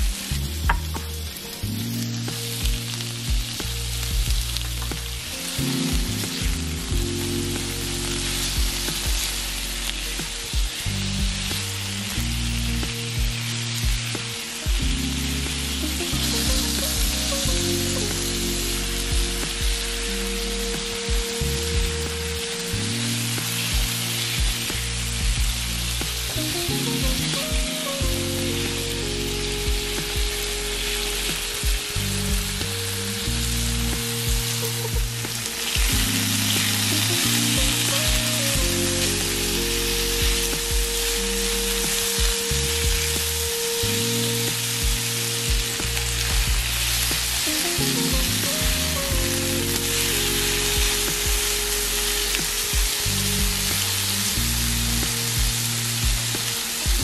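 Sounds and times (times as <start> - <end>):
food sizzling in oil: 0.0 - 57.0
music of low held notes: 0.0 - 57.0.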